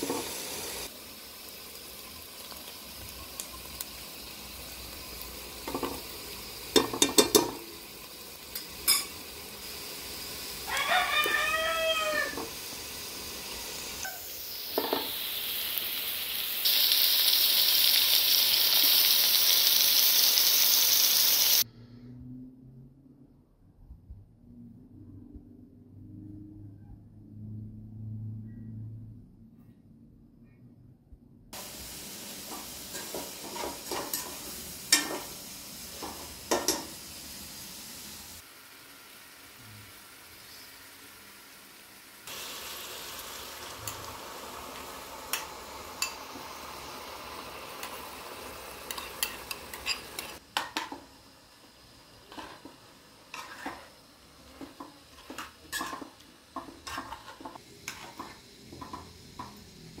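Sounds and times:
chicken sizzling in a pot: 0:00.0 - 0:21.7, 0:31.5 - 1:00.0
metal spoon clinking and scraping: 0:08.5 - 0:09.2, 0:32.9 - 0:35.3, 0:48.8 - 0:50.9, 0:53.3 - 0:53.9, 0:55.1 - 0:59.6.

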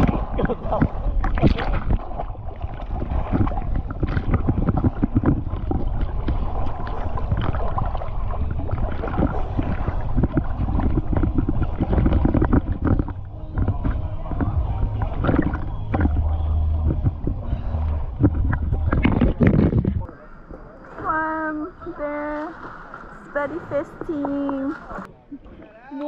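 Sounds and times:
wind rumbling on microphone: 0:00.0 - 0:20.2
water splashing around a boat: 0:00.0 - 0:26.0.

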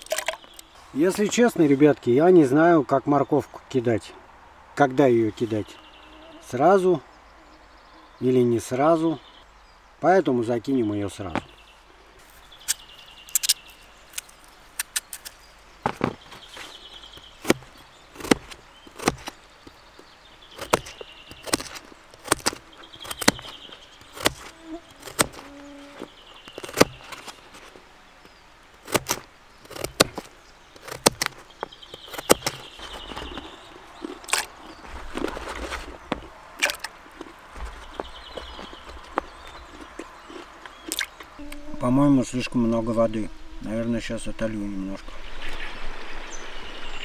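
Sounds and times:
high buzzy chirping: 0:40.8 - 0:44.8.

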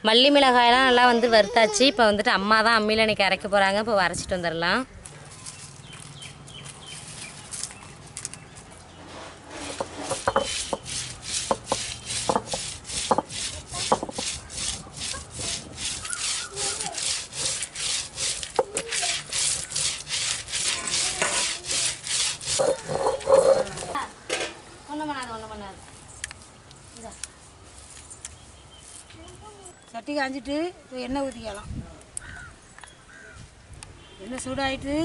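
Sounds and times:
dry seeds crackling: 0:05.0 - 0:12.6
stone roller grinding spices: 0:09.5 - 0:24.0.

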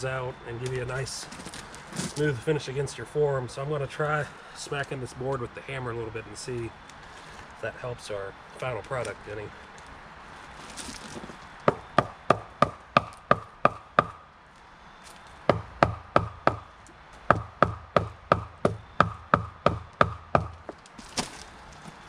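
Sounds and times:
hammer knocking on wooden board: 0:11.7 - 0:14.2, 0:15.5 - 0:16.6, 0:17.3 - 0:20.8.

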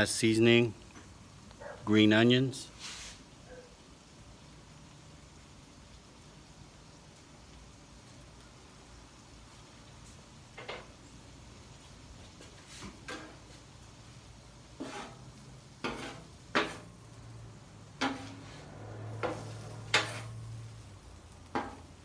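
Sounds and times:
metal spatula scraping griddle: 0:02.8 - 0:03.2, 0:12.4 - 0:13.6, 0:14.7 - 0:17.1, 0:17.9 - 0:20.8, 0:21.5 - 0:22.0.

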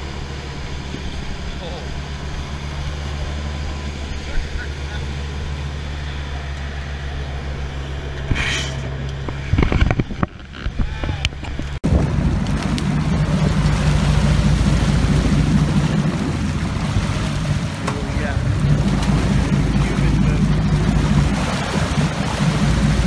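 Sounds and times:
boat engine drone: 0:00.0 - 0:23.0
water rushing: 0:11.8 - 0:23.0
wind rushing: 0:11.8 - 0:23.0.

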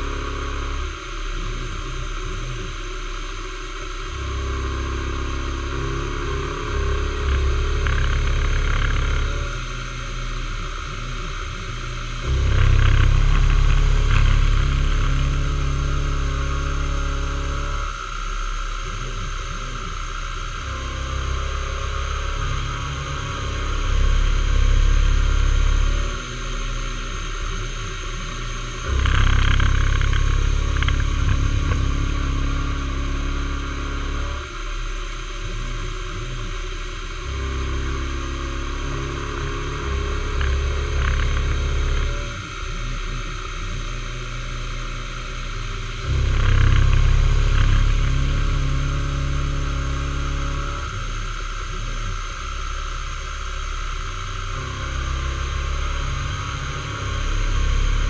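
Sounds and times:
milling machine cutting metal: 0:00.0 - 0:58.0.

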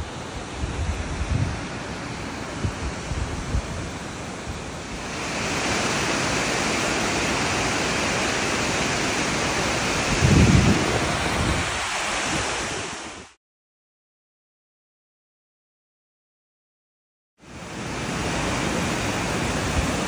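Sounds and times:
wind rumble on microphone: 0:00.0 - 0:06.4, 0:09.4 - 0:13.3, 0:17.6 - 0:20.0
waterfall rushing: 0:00.0 - 0:13.4, 0:17.4 - 0:20.0.

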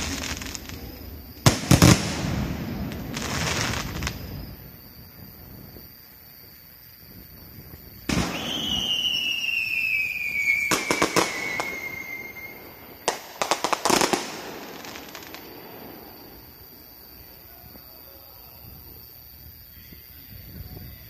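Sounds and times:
firework cracks: 0:00.0 - 0:04.8, 0:08.0 - 0:17.3
firework bangs: 0:00.0 - 0:05.9, 0:07.0 - 0:19.0
firework whistle falling in pitch: 0:08.1 - 0:12.9.

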